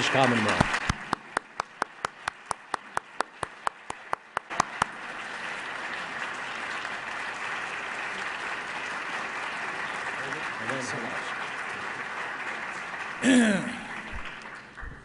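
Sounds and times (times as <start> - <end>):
person clapping sharply: 0.0 - 5.0, 11.7 - 14.9
audience applause: 0.0 - 15.0.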